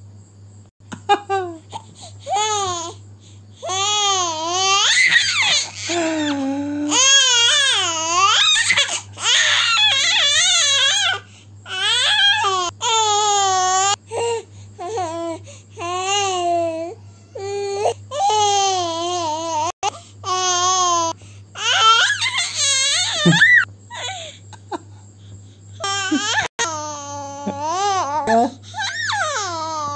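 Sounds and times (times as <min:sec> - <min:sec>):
baby laughing: 0:23.1 - 0:24.3, 0:25.8 - 0:26.5, 0:27.2 - 0:28.5.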